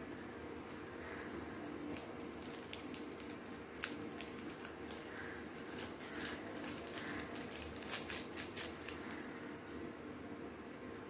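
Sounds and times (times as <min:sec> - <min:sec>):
plastic sachet crinkling: 0:01.5 - 0:09.3.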